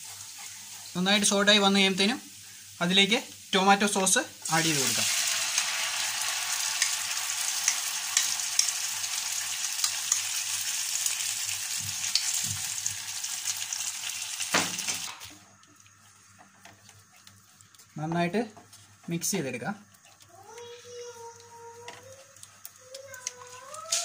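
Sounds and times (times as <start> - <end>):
wooden spatula stirring: 0.0 - 1.7, 15.3 - 24.0
sauce sizzling in a frying pan: 0.0 - 24.0.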